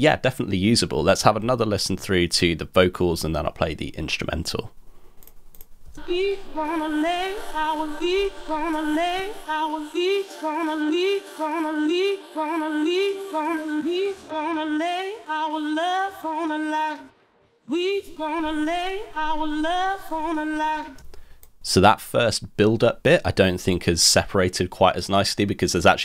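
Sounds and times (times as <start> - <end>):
woman singing: 6.0 - 17.1, 17.7 - 21.0.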